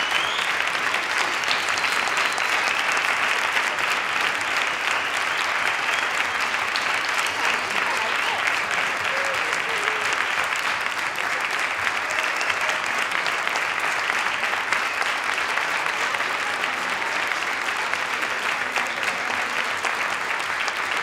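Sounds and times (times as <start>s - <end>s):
audience applauding: 0.0s - 21.0s.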